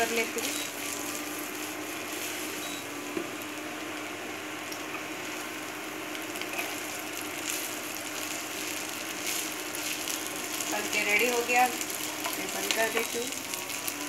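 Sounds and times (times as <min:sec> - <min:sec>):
fried rice sizzling in a wok: 0:00.0 - 0:14.0
spatula scraping through rice: 0:07.4 - 0:10.7.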